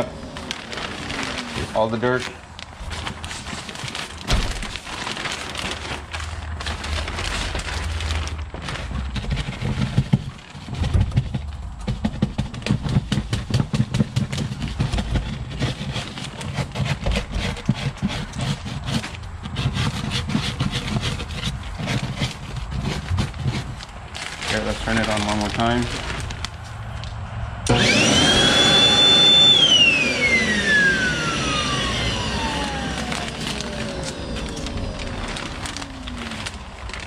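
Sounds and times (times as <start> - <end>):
plastic bag rustling: 0.0 - 27.2, 27.8 - 37.0
vacuum motor running: 27.7 - 37.0.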